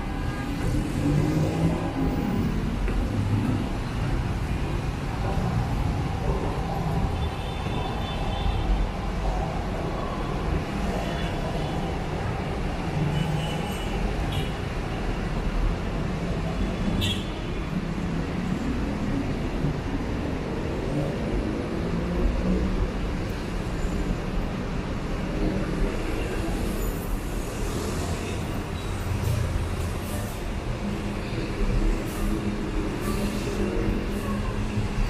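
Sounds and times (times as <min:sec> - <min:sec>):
city road traffic: 0:00.0 - 0:35.0.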